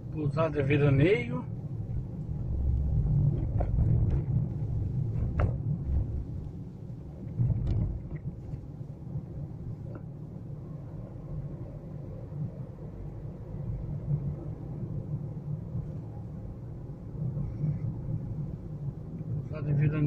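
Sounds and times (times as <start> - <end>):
car interior rumble: 0.0 - 20.0.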